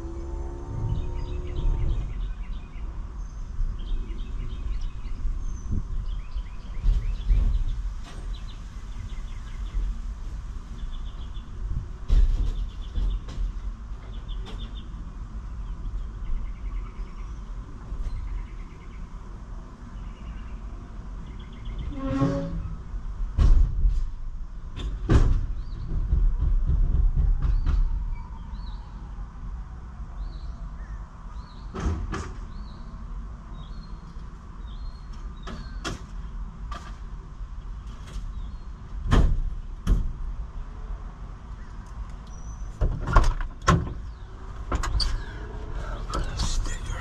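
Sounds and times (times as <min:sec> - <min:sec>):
low rumble: 0:00.0 - 0:07.8, 0:44.0 - 0:47.0
sharp knocks and clunks: 0:12.0 - 0:14.8, 0:23.3 - 0:24.2, 0:24.8 - 0:28.0, 0:31.7 - 0:32.5, 0:35.1 - 0:37.1, 0:39.0 - 0:40.2, 0:42.7 - 0:47.0.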